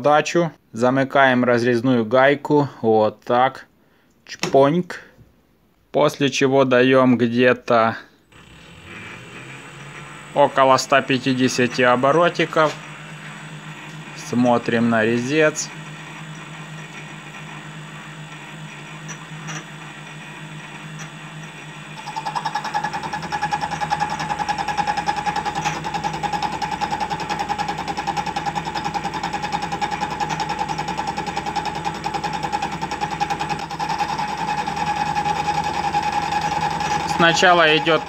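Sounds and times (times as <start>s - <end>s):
lathe spindle humming: 8.3s - 38.0s
boring tool clattering: 19.0s - 19.8s
steady ringing tone: 22.0s - 28.0s.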